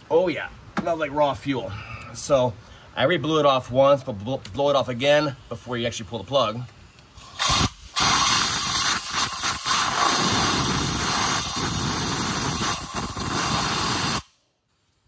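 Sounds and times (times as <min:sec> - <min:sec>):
compressed air blow gun hissing: 0:06.8 - 0:15.0.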